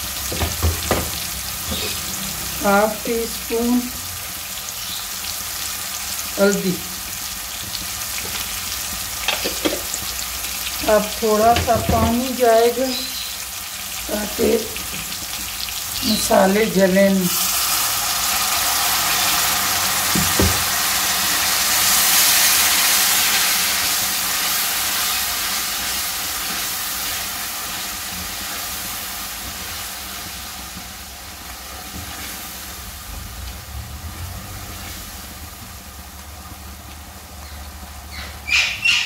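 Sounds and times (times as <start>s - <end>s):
water sizzling in hot oil: 0.0s - 39.0s
knock: 0.3s - 1.2s, 20.1s - 20.7s.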